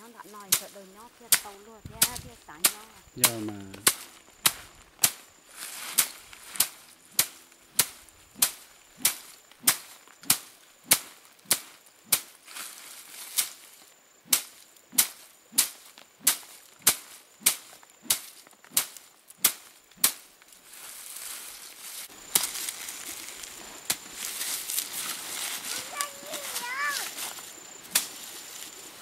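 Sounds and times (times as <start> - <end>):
stalks beaten with cracking strikes: 1.3 - 5.2, 5.9 - 12.4, 14.3 - 20.3.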